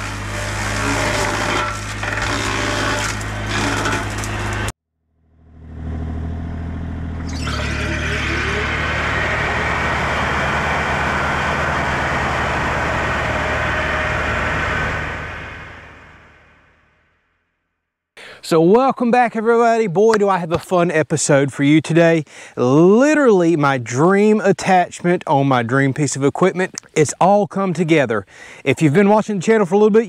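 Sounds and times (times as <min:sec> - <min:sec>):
wood cracking and splintering: 0:00.0 - 0:04.7
excavator engine drone: 0:00.0 - 0:17.1.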